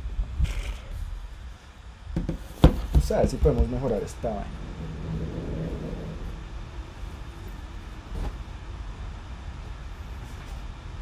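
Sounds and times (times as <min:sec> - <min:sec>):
faint low hum: 0:00.0 - 0:11.0
low rumble: 0:03.4 - 0:08.9.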